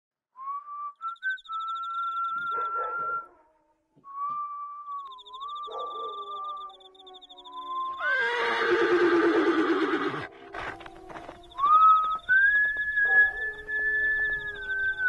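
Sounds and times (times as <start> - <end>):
person whistling: 0.4 - 3.3, 11.6 - 15.0.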